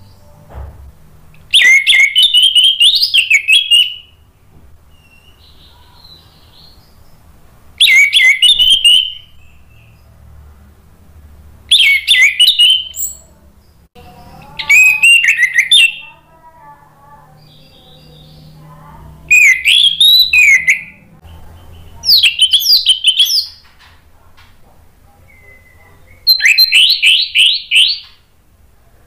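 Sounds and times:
thrush whistling song: 1.5 - 4.3, 7.8 - 10.0, 11.7 - 13.3, 14.6 - 16.1, 19.3 - 23.6, 25.2 - 28.2.

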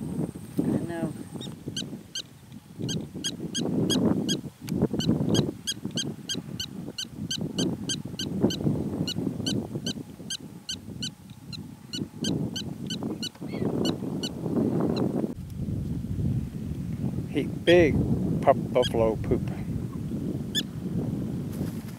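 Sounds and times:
gusty low rumble: 0.0 - 21.9
prairie dog alarm chirps: 1.3 - 4.4, 5.0 - 14.3.

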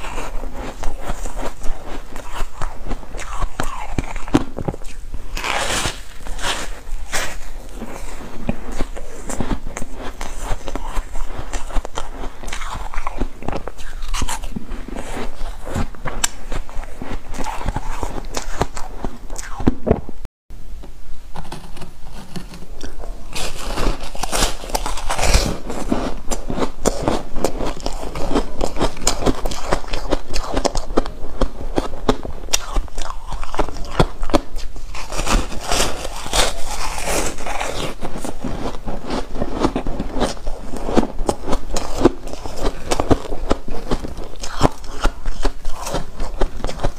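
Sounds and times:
chewing crunchy ice: 0.0 - 19.7, 21.5 - 46.9.

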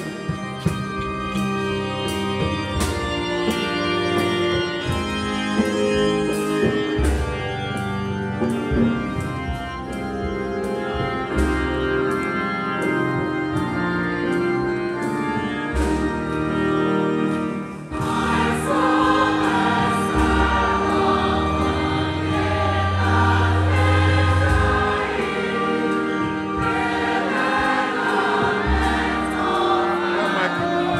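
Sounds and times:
keyboard accompaniment: 0.0 - 30.9
choir singing a hymn: 12.8 - 30.9.

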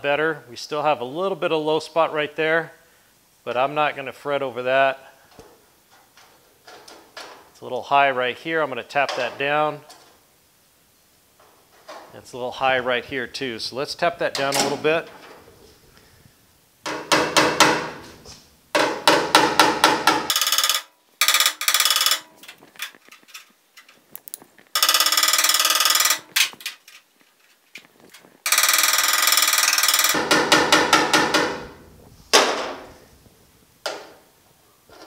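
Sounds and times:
hammer tapping on sheet metal: 16.8 - 18.1, 18.8 - 20.4, 30.0 - 31.8.

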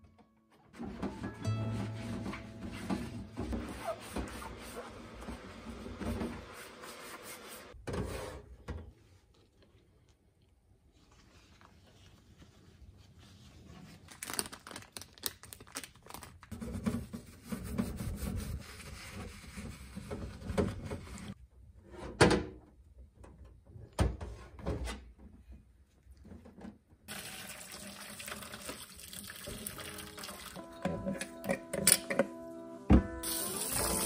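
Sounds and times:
hot water pouring into basin: 27.1 - 30.6, 33.2 - 34.0.

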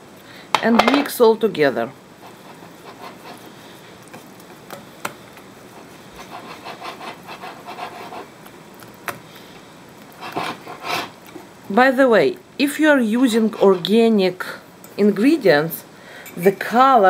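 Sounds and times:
whisk beating batter: 2.2 - 9.4.

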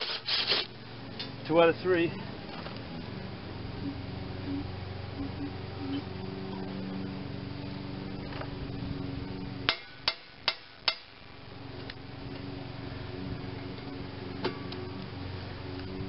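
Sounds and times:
low hum: 0.0 - 16.0
hammer tapping metal bit: 9.7 - 11.1.

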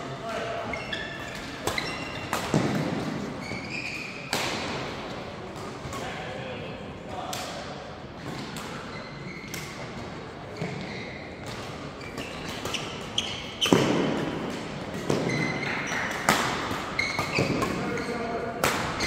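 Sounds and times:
shoes squeaking on court floor: 0.6 - 4.4, 8.8 - 19.0
rackets smacking shuttlecock: 11.4 - 19.0.

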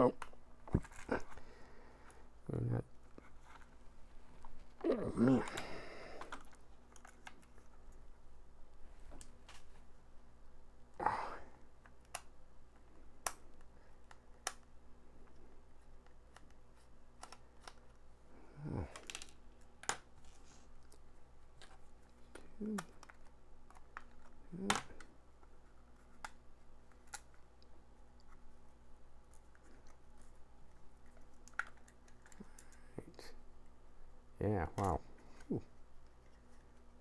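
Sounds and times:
clicks and taps of small parts: 11.8 - 15.4.

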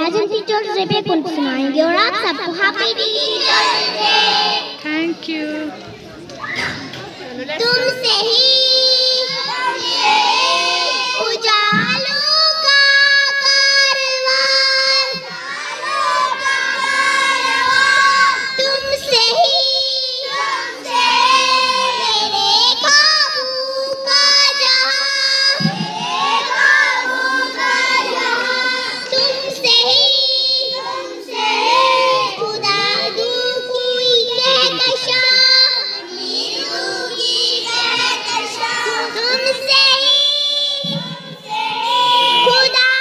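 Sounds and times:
children singing in chorus: 2.7 - 4.8, 7.6 - 43.0.

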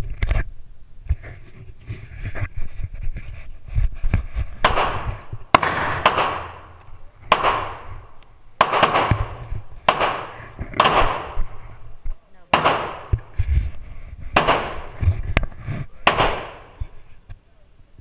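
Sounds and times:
gunshots with ringing echo: 4.6 - 11.6, 12.5 - 13.3, 14.4 - 15.0, 16.0 - 16.9.

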